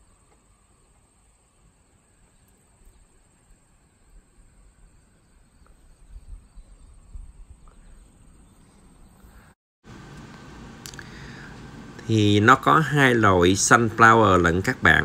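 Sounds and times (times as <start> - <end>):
wind buffeting microphone: 5.8 - 8.4.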